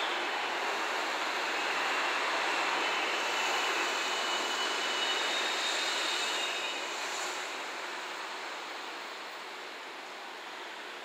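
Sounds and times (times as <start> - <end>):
high wheel squeal: 3.3 - 7.0.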